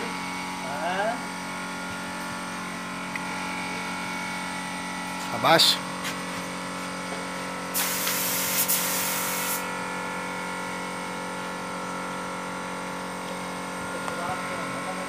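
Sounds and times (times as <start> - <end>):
steady machine hum: 0.0 - 15.0
spray gun hissing: 7.7 - 9.7.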